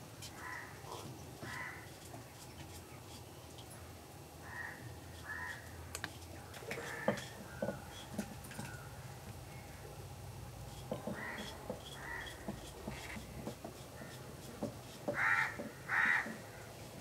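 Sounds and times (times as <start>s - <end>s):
crows cawing: 0.4s - 0.8s, 1.4s - 1.9s, 4.4s - 5.8s, 6.7s - 7.9s, 11.0s - 12.6s, 15.1s - 16.7s
knife scraping vegetable peel: 10.7s - 15.1s.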